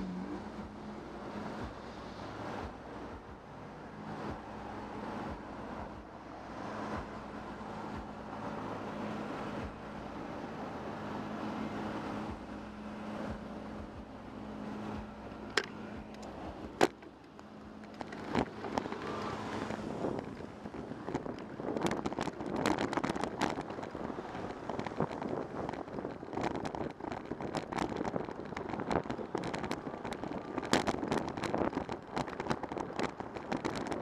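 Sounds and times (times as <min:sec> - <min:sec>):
cars driving past: 0:00.0 - 0:26.1
wind on microphone: 0:00.0 - 0:34.0
dense crackling rattle: 0:15.5 - 0:34.0.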